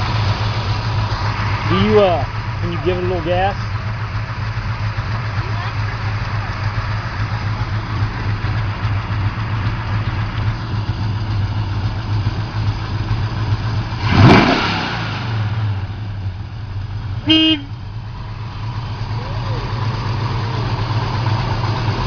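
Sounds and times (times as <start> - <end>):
car engine idling and revving: 0.0 - 22.0
short horn beep: 17.2 - 17.7.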